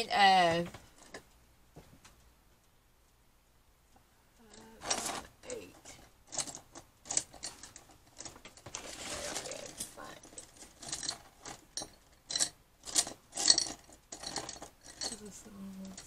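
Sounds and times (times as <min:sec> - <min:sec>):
paper rustling: 0:04.8 - 0:05.3, 0:08.6 - 0:10.2.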